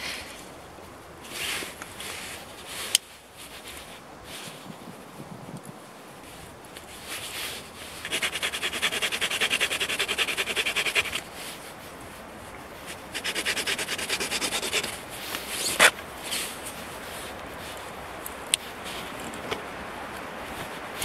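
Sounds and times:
saw rasping through stick: 0:08.0 - 0:11.2, 0:13.0 - 0:15.0.

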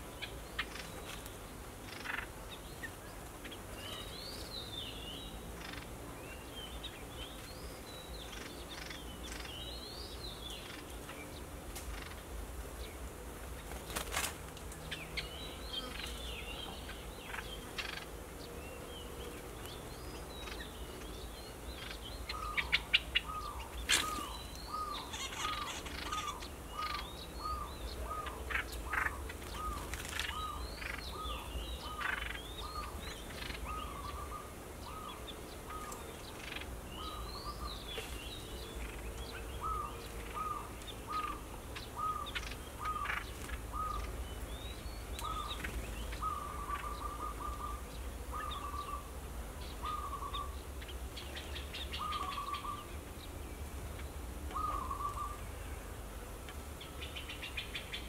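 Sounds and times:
dove cooing: 0:39.6 - 0:44.0, 0:46.2 - 0:49.1, 0:49.8 - 0:50.6, 0:52.0 - 0:52.8, 0:54.5 - 0:55.4.

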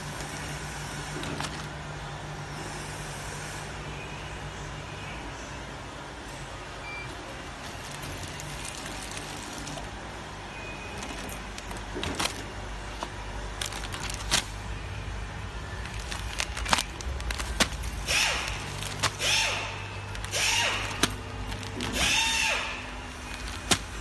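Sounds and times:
plastic sachet clicks and rustles: 0:00.0 - 0:01.8, 0:07.6 - 0:09.9, 0:10.9 - 0:14.8, 0:15.6 - 0:24.0
sealing mechanism clacks: 0:00.0 - 0:01.8, 0:07.6 - 0:09.9, 0:10.8 - 0:14.7, 0:15.8 - 0:24.0
packing machine motor hum: 0:00.0 - 0:02.3, 0:07.0 - 0:24.0.

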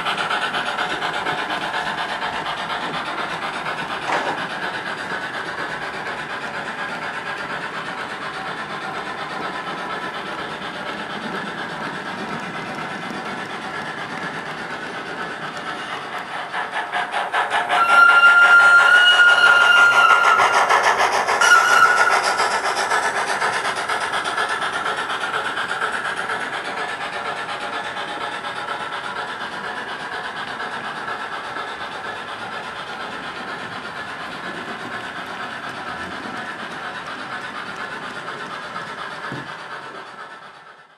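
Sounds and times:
model train clattering on track: 0:00.0 - 0:40.9
steam locomotive chuffing: 0:00.0 - 0:40.9
train whistle blasts: 0:17.7 - 0:20.8, 0:21.4 - 0:22.6.

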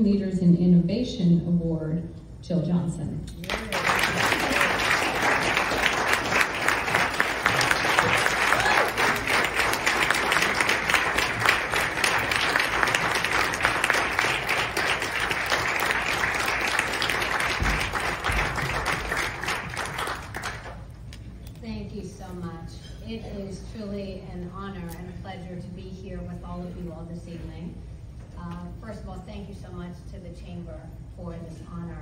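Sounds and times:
audience applauding: 0:03.4 - 0:20.8.

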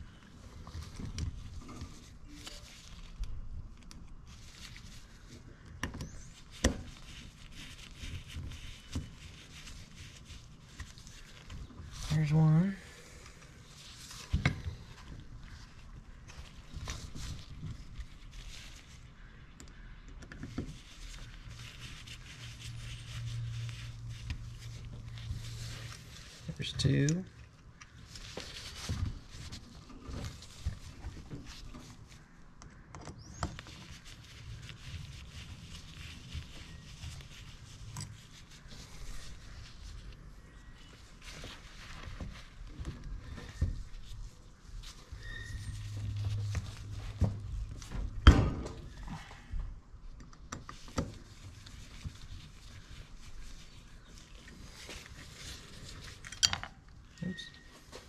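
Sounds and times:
short rising squeak: 0:45.2 - 0:46.5, 0:57.2 - 0:57.7.

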